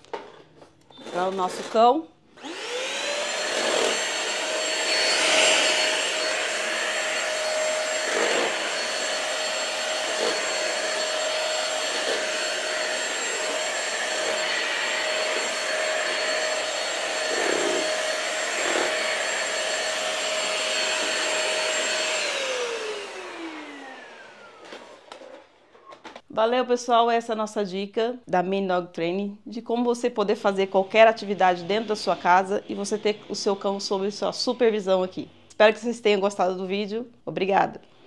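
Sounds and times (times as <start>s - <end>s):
vacuum cleaner motor whine: 2.4s - 25.5s.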